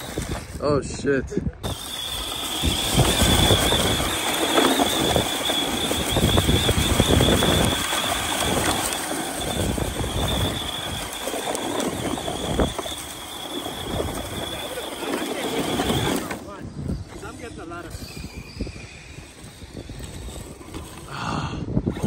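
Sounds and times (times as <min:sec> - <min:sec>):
rc truck motor whine: 0:00.0 - 0:00.6, 0:01.6 - 0:22.0.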